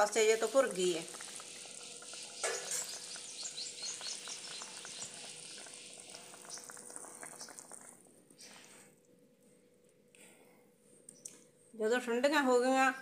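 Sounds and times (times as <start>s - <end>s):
syrup bubbling and crackling: 0.0s - 9.0s.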